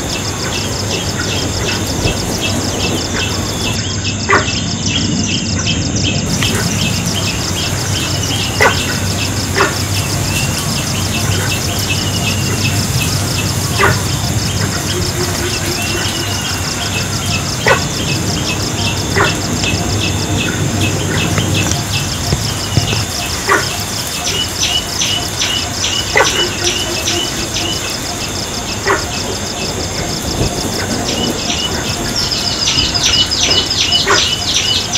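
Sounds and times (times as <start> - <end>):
bird chirps: 1.3 - 27.9.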